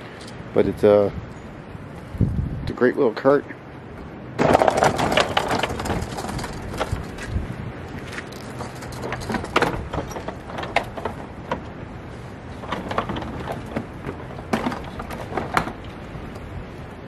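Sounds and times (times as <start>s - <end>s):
casters rolling over wooden boards: 4.4s - 7.4s, 8.0s - 16.1s
tools rattling and clunking: 4.4s - 16.3s.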